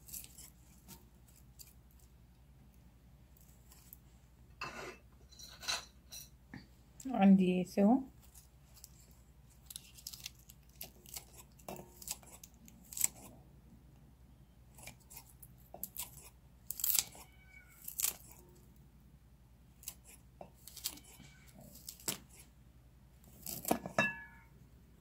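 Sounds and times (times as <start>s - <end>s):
scissors snipping garlic: 9.7s - 13.3s, 14.7s - 17.2s, 17.8s - 18.4s, 19.8s - 22.4s, 23.2s - 24.0s.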